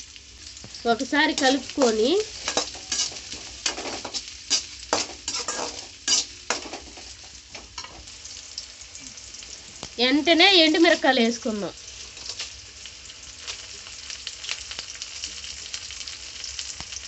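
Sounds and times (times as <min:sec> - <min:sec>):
faint frying sizzle: 0:00.0 - 0:17.0
metal spatula scraping pan: 0:01.3 - 0:07.2.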